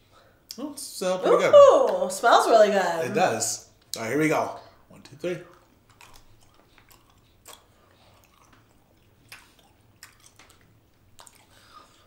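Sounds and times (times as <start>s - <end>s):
chewing candy: 5.5s - 12.0s
wet mouth clicks and smacks: 5.8s - 11.6s.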